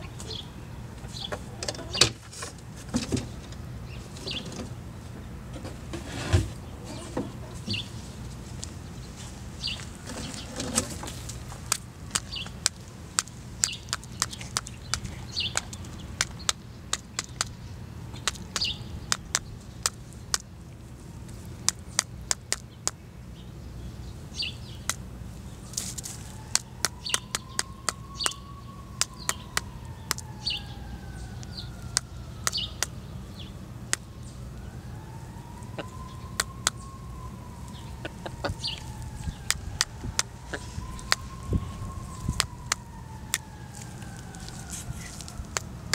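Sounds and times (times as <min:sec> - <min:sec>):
sharp clicks and taps: 0:11.7 - 0:17.6, 0:18.2 - 0:20.5, 0:21.6 - 0:23.0, 0:26.5 - 0:28.4, 0:29.0 - 0:30.3, 0:39.5 - 0:41.2, 0:42.3 - 0:43.5.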